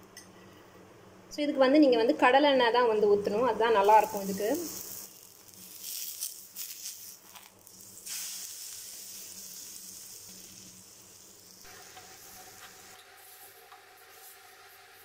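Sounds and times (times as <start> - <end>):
pancake sizzling in oil: 3.8 - 15.0.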